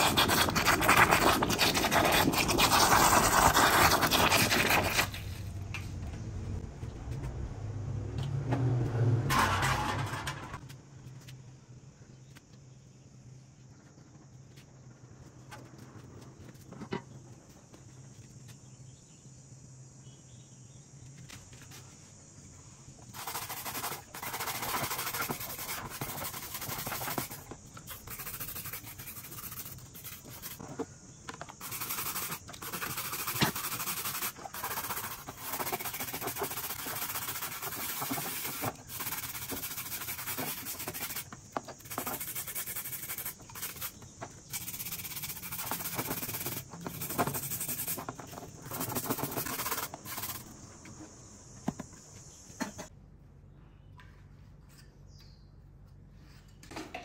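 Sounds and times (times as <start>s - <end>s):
wire brush scrubbing wet metal: 0.0s - 5.4s, 23.1s - 30.6s, 31.6s - 50.5s.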